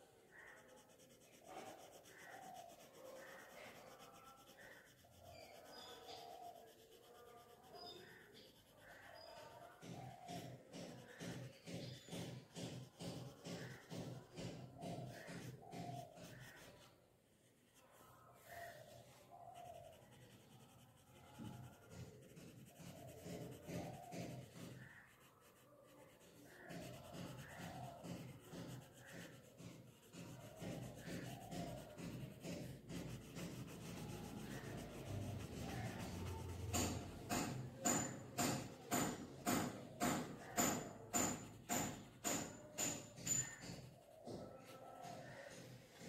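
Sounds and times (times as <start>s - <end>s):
pencil scratching on paper: 0.0s - 46.0s
sharp taps: 8.9s - 17.0s, 19.6s - 25.0s, 26.0s - 46.0s.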